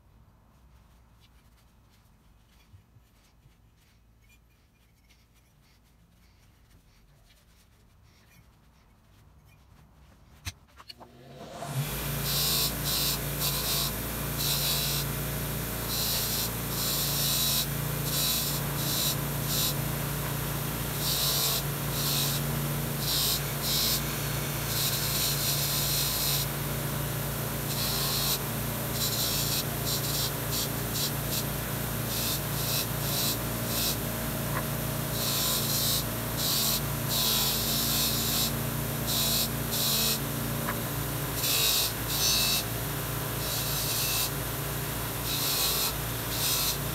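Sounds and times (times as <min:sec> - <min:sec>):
bench grinder motor running: 0:11.1 - 0:46.9.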